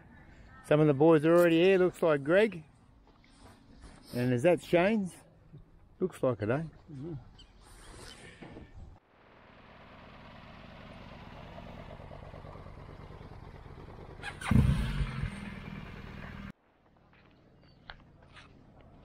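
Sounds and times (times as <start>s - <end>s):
motorcycles running at low speed: 9.2s - 16.6s.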